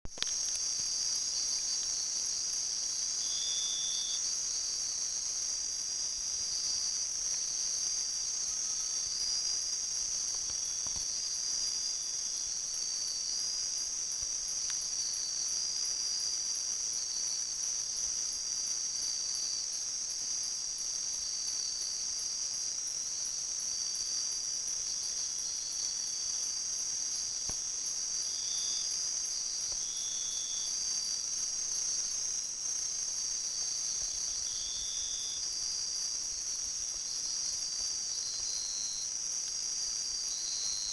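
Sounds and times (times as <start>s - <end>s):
insect buzzing calls: 0.2s - 40.9s
insects trilling high pitched: 0.2s - 40.9s.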